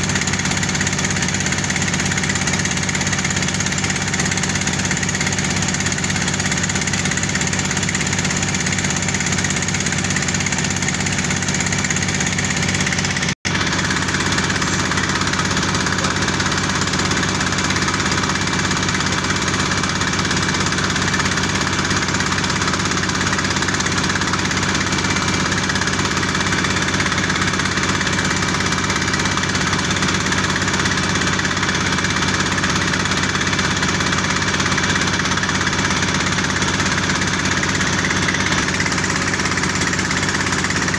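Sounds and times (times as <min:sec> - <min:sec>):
diesel engine running steadily: 0:00.0 - 0:40.9.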